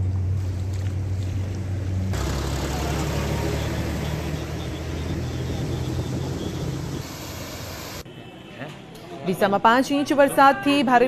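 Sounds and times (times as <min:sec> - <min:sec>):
heavy engine rumble: 0:00.0 - 0:08.0
vehicle engines humming: 0:00.0 - 0:08.2
tyres hissing through water: 0:05.8 - 0:08.0.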